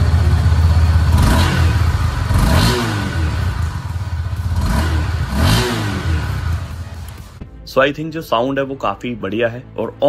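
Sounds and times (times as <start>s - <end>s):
motorcycle engine idling and revving: 0.0s - 7.6s.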